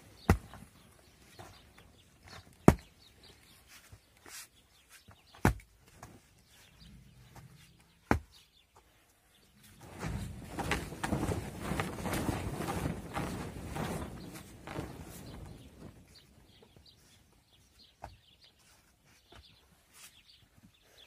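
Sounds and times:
scraping and shuffling: 9.6s - 17.4s.

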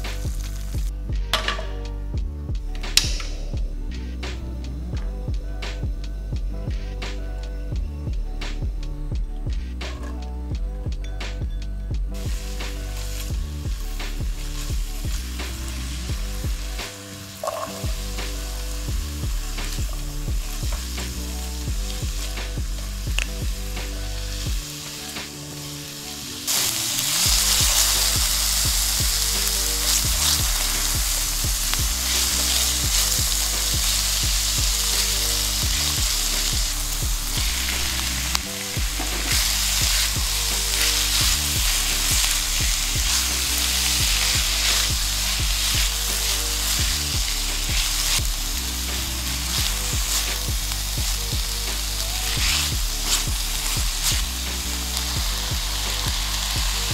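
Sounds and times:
onions sizzling in oil: 0.0s - 1.7s, 12.1s - 56.9s
spatula stirring in pan: 24.5s - 56.9s.

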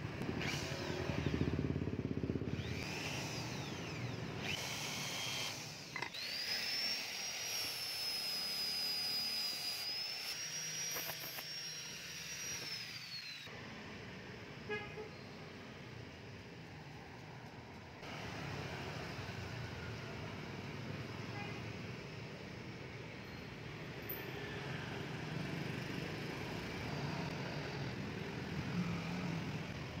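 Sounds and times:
electric drill on metal: 0.2s - 1.7s, 2.4s - 13.5s
angle grinder whine: 2.4s - 13.6s.

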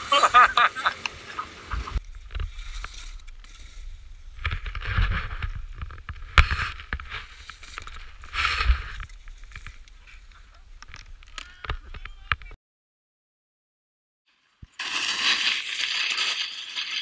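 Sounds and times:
snowboard scraping over snow: 0.0s - 10.6s.

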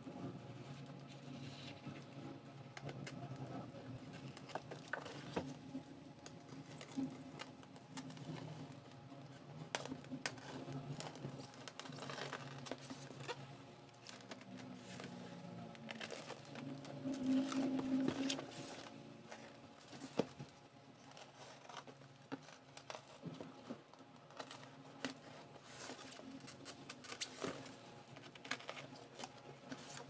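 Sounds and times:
low steady hum: 0.0s - 30.0s
tape crinkles: 9.6s - 30.0s.

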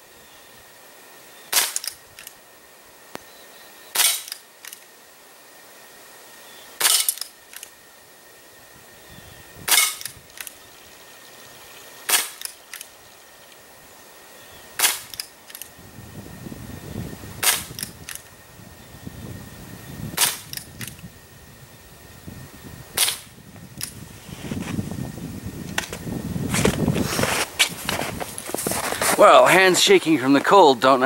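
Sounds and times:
air pistol shots popping: 1.5s - 2.0s, 4.0s - 4.4s, 6.8s - 7.3s, 9.7s - 10.2s, 12.0s - 12.9s, 14.8s - 15.3s, 17.4s - 17.9s, 20.2s - 20.7s, 23.0s - 23.3s.

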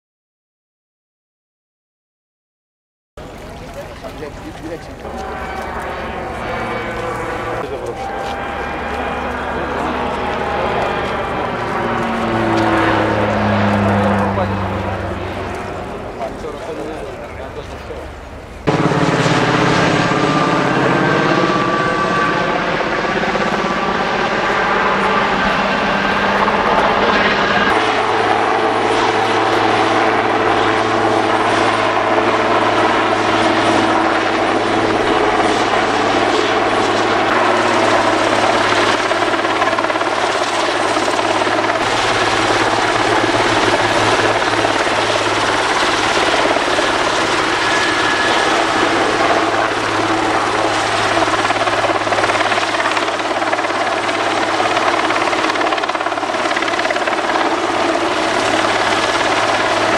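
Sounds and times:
helicopter rotor and turbines droning: 3.2s - 59.9s
high turbine whine: 3.2s - 59.9s.

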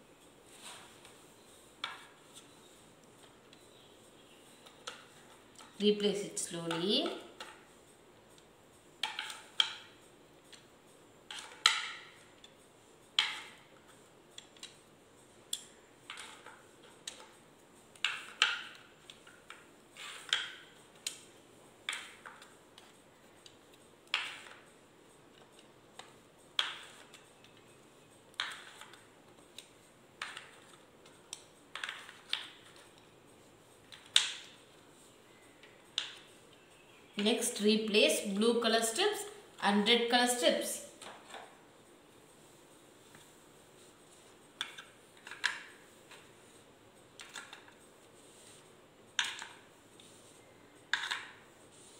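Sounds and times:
plastic strips clacking into tray: 44.6s - 46.2s, 47.2s - 47.8s.

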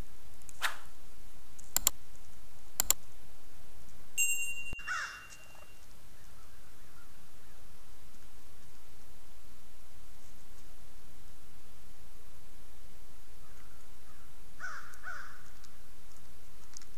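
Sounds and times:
mouse clicks: 1.6s - 2.0s, 2.8s - 3.0s
bright chime: 4.2s - 5.9s.

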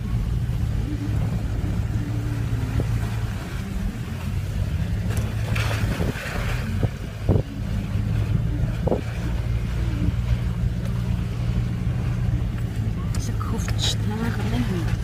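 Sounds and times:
car engine and road drone: 0.0s - 15.0s.

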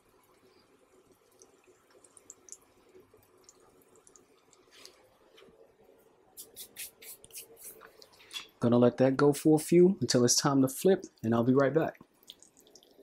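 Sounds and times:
small crackles and pops: 0.1s - 5.6s, 11.0s - 13.0s.

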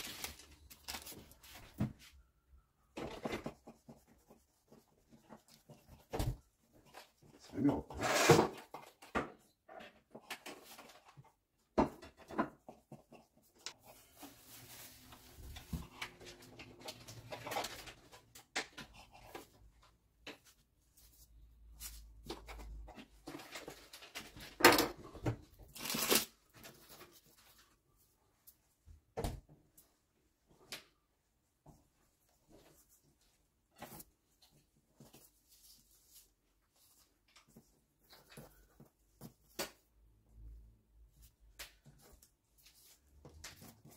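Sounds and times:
paper rustling: 0.0s - 2.0s.

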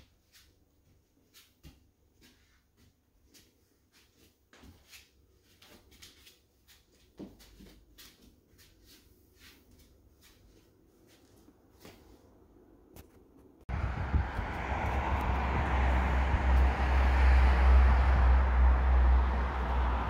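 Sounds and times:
faint footsteps on wooden floor: 0.2s - 12.3s.

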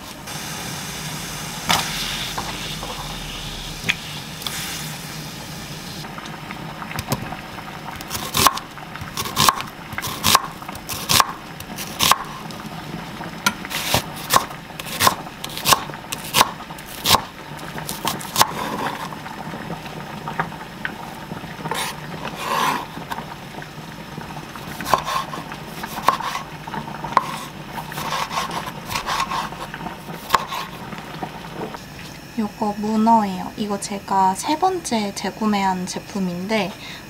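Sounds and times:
knife slicing on wooden cutting board: 24.8s - 26.4s, 27.2s - 29.6s.

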